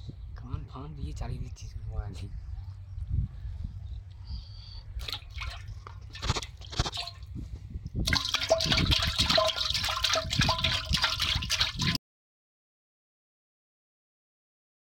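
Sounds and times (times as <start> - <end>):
water splashing with thrashing fish: 5.0 - 7.4, 8.0 - 12.0.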